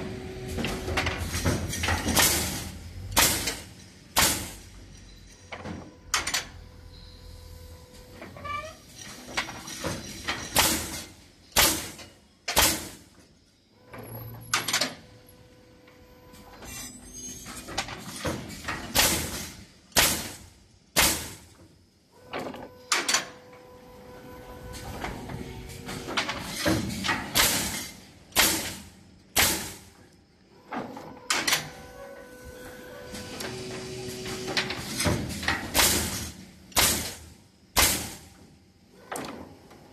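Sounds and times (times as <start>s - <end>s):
machine hum: 0.0s - 8.3s, 22.0s - 39.9s
pneumatic nailer firing: 0.5s - 4.7s, 9.6s - 13.1s, 17.5s - 21.6s, 25.7s - 30.0s, 33.1s - 38.3s
nail gun shots: 3.2s - 3.6s, 4.2s - 4.6s, 11.6s - 13.0s, 18.9s - 20.4s, 21.0s - 21.4s, 27.3s - 28.8s, 29.4s - 29.8s, 35.7s - 37.2s, 37.8s - 38.2s.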